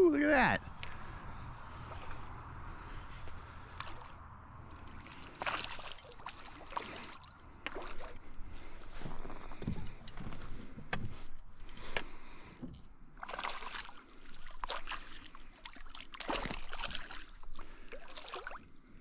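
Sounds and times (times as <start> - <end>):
fish splashing at water surface: 1.8 - 8.3, 13.2 - 18.6.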